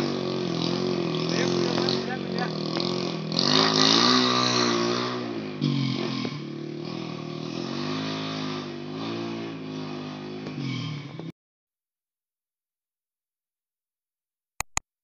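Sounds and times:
motorcycle engine revving: 0.0s - 11.3s.

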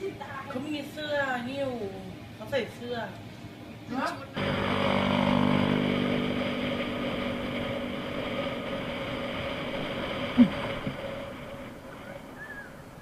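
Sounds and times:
vehicle engine running: 4.4s - 13.0s.

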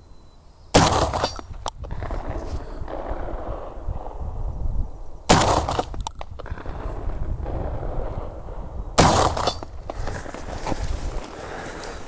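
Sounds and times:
shotgun blasts: 0.7s - 4.6s, 5.2s - 10.0s.

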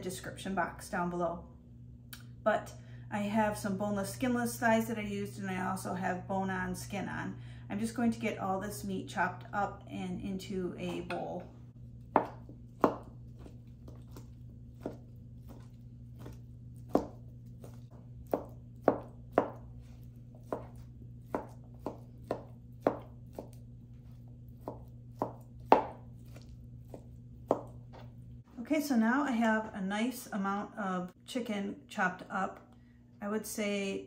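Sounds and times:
low steady hum: 0.0s - 34.0s
knife chopping on cutting board: 12.0s - 28.1s.

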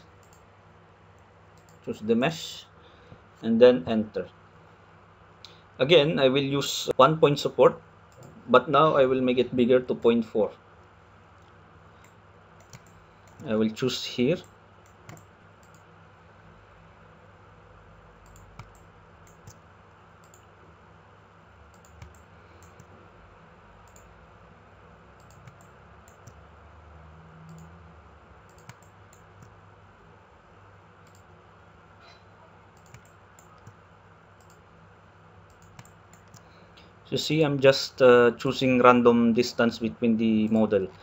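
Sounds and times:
computer mouse clicks: 0.0s - 0.4s, 1.6s - 1.8s, 8.1s - 8.4s, 11.4s - 13.5s, 14.4s - 15.9s, 18.2s - 19.6s, 20.2s - 20.5s, 21.7s - 22.9s, 23.8s - 24.1s, 25.2s - 26.4s, 27.5s - 27.8s, 28.5s - 29.5s, 31.0s - 31.3s, 32.8s - 33.8s, 34.4s - 34.6s, 35.5s - 36.5s
faint hum and hiss: 0.0s - 41.0s.

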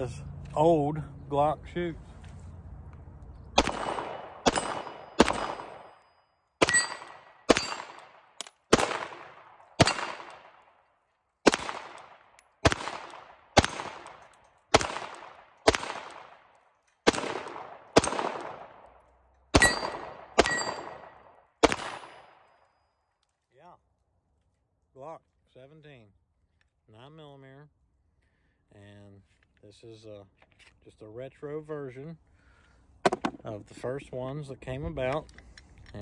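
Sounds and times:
pistol shots with echo: 3.6s - 6.0s, 6.6s - 10.8s, 11.4s - 22.5s
steel targets ringing: 6.6s - 8.0s, 19.6s - 21.2s.

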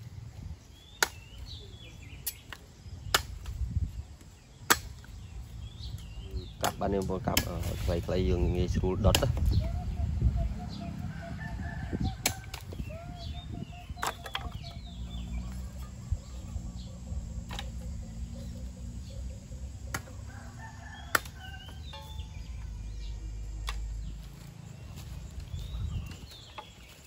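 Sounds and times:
small birds chirping: 0.0s - 27.0s
chickens clucking: 9.1s - 23.9s
low steady rumble: 14.5s - 26.8s.

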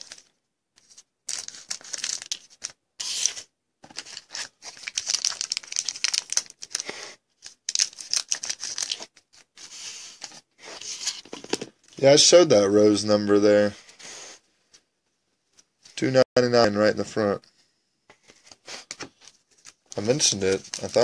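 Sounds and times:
foil wrappers crinkling and tearing: 0.0s - 3.3s, 3.9s - 9.4s, 19.2s - 21.0s.

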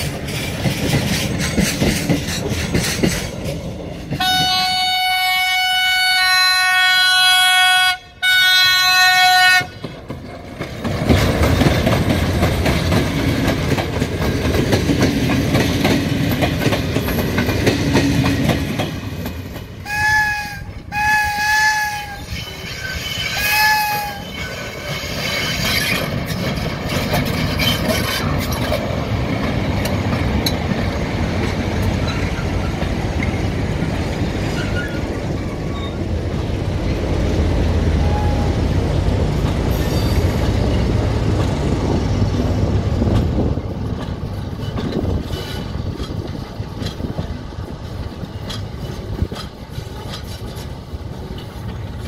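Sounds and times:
wheels clicking over rail joints: 0.0s - 5.0s, 9.2s - 52.0s
freight train rumbling: 0.0s - 52.0s
high squeal: 22.0s - 26.1s, 39.7s - 40.4s.

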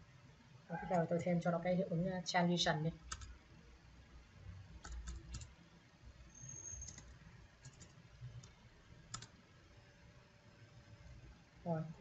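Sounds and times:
computer keyboard typing: 3.0s - 3.4s, 4.8s - 5.6s, 6.6s - 9.4s.

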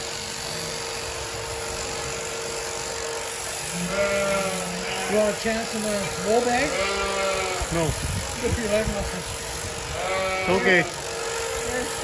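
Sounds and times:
electric shears buzzing: 0.0s - 12.0s
sheep bleating: 3.6s - 8.0s, 10.0s - 11.0s.

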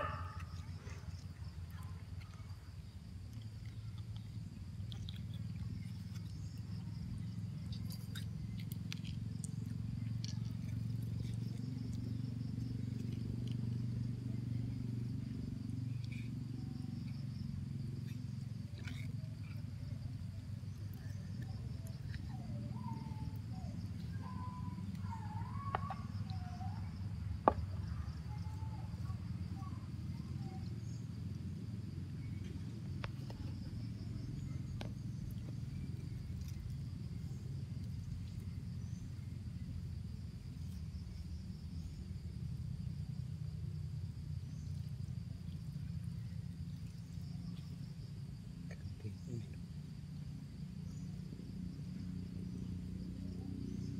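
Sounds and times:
faint insect hum: 0.0s - 53.9s
bird calls: 20.9s - 30.9s.

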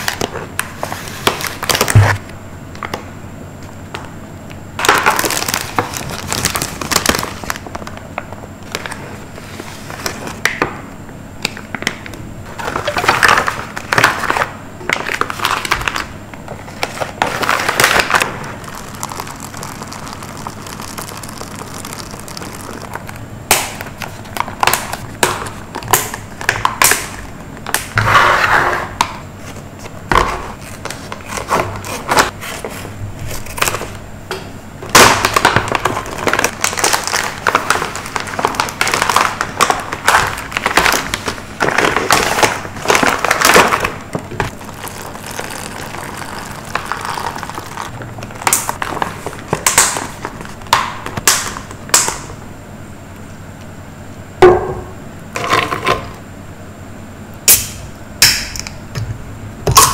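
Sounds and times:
packaging rustling and tearing: 0.0s - 2.2s, 4.8s - 10.5s, 11.5s - 28.0s, 29.4s - 34.0s, 34.9s - 52.3s.

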